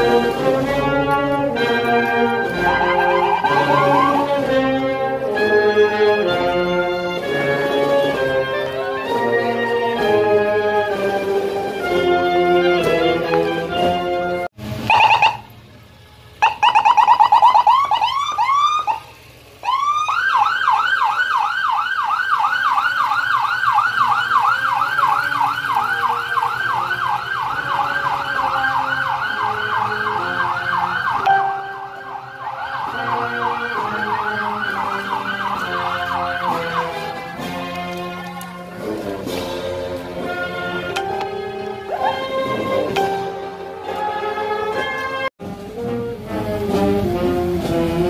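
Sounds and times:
marching band music: 0:00.0 - 0:15.4, 0:20.9 - 0:48.0
electronic siren wailing and yelping: 0:02.5 - 0:04.9, 0:14.9 - 0:15.5, 0:16.4 - 0:37.1, 0:41.8 - 0:42.9.

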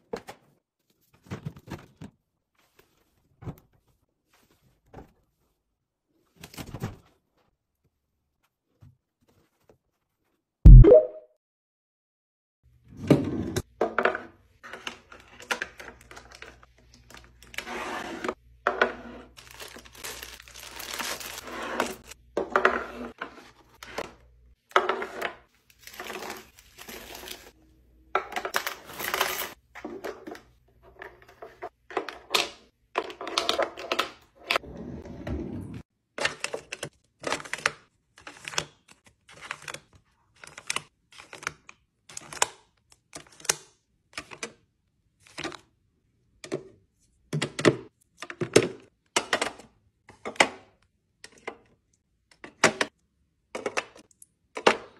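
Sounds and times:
plastic wrappers crinkling: 0:19.4 - 0:22.1, 0:25.7 - 0:27.6, 0:28.5 - 0:29.6.

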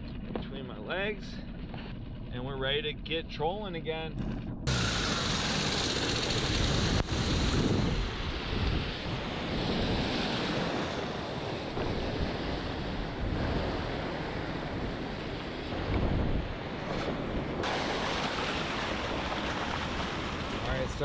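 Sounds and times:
wind buffeting microphone: 0:04.2 - 0:21.0
surf breaking: 0:16.8 - 0:21.0
whitewater rushing: 0:17.6 - 0:21.0.

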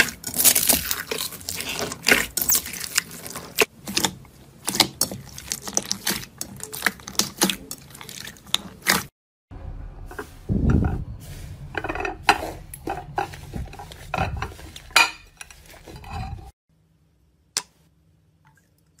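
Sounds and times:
slime squelching by hand: 0:00.0 - 0:09.1.

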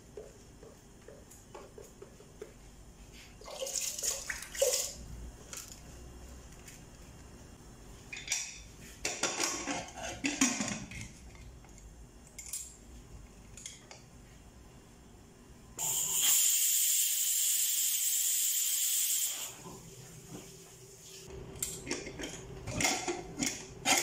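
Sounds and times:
pressure cooker whistling hiss: 0:15.8 - 0:19.6.

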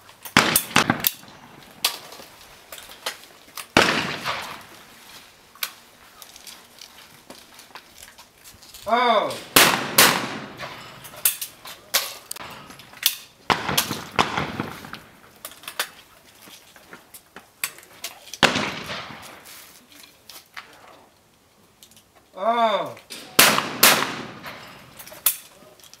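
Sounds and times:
light cracks: 0:00.1 - 0:04.9
shotgun shots: 0:00.4 - 0:01.5, 0:03.7 - 0:04.8, 0:09.3 - 0:11.0, 0:13.5 - 0:15.1, 0:18.4 - 0:19.4, 0:23.1 - 0:24.9
person shouting: 0:08.9 - 0:09.4, 0:22.4 - 0:23.0.

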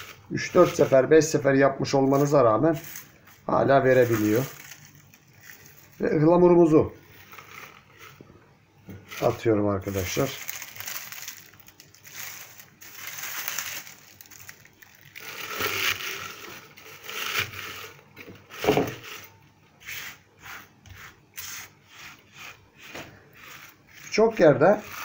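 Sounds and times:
dried flowers rustling and crackling: 0:00.0 - 0:08.2, 0:08.9 - 0:19.4
scratchy rubs on wooden board: 0:18.6 - 0:25.0.

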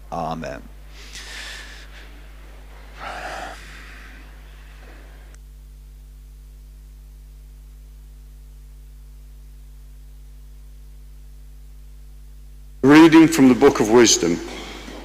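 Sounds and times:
electrical mains hum: 0:00.0 - 0:15.0
faint hiss: 0:00.1 - 0:05.7.

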